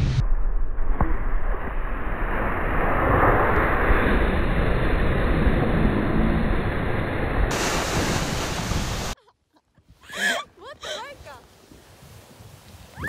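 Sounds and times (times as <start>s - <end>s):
snowboards sliding over snow: 2.9s - 9.2s, 10.0s - 13.0s.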